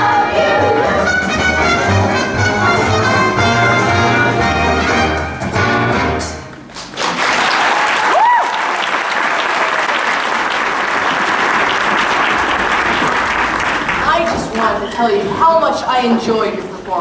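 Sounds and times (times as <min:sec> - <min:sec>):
brass show music: 0:00.0 - 0:06.7
audience applauding: 0:06.6 - 0:14.9.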